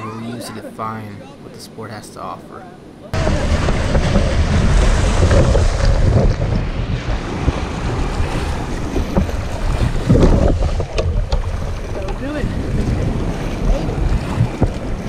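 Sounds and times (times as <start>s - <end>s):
surf breaking and splashing: 3.1s - 15.0s
wind rumble on microphone: 3.2s - 15.0s.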